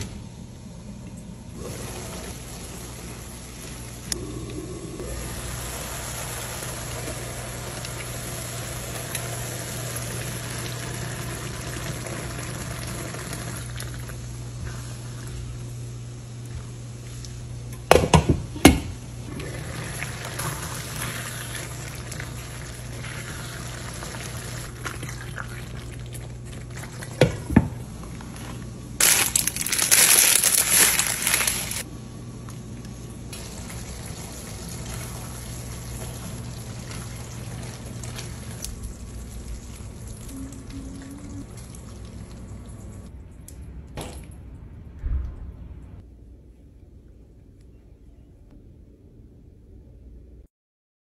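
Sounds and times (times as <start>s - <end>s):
low hum: 18.5s - 50.5s
dry pasta rattling into pot: 29.0s - 31.8s.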